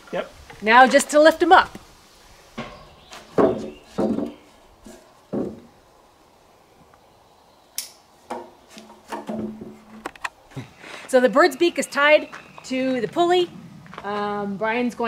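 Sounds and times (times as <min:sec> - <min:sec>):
dull knocks of wooden frame: 0:02.6 - 0:05.7, 0:08.3 - 0:10.2
sharp click: 0:07.8 - 0:08.0.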